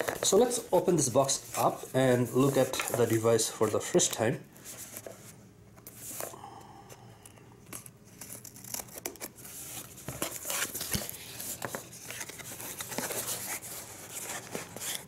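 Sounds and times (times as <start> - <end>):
cardboard scraping and tearing: 8.1 - 15.0.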